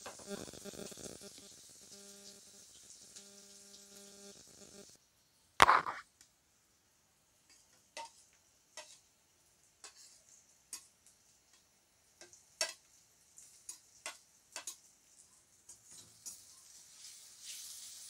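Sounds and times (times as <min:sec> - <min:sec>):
onions frying: 0:00.0 - 0:05.0, 0:07.0 - 0:18.0
metal spatula scraping plate: 0:08.8 - 0:09.0, 0:09.8 - 0:10.8.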